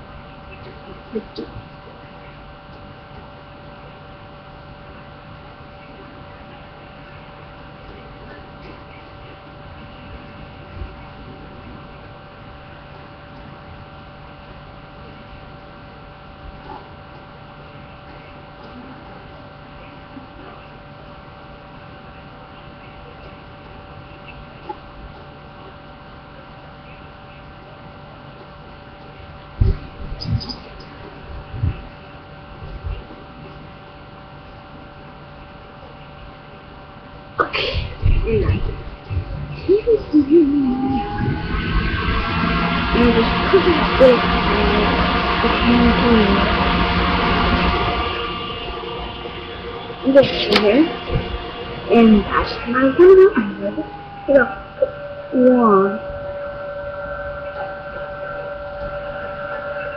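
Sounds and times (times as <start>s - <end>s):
electrical hum with fixed tones: 0.0s - 59.9s
thin steady tones: 38.0s - 59.9s.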